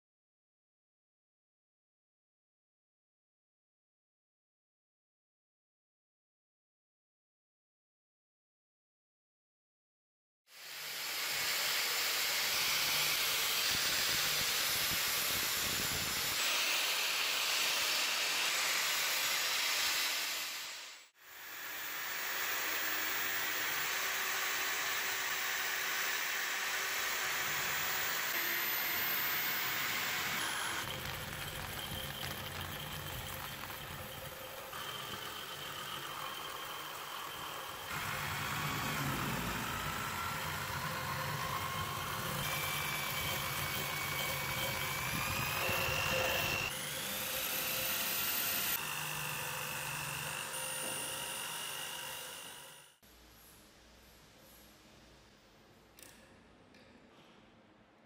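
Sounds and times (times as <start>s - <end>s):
rising whine: 28.3s - 46.7s.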